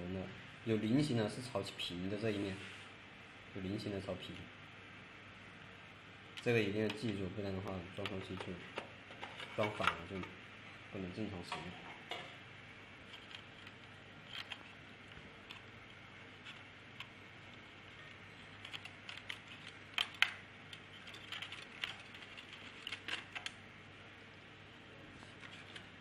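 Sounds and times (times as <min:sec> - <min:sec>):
small projector parts clicking: 0:13.1 - 0:23.6.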